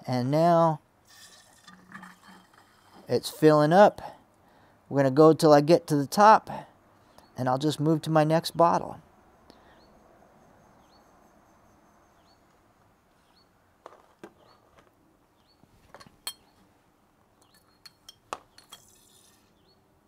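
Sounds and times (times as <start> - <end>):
glass bottles clinking: 1.2 - 3.1, 15.9 - 16.6, 17.5 - 19.4.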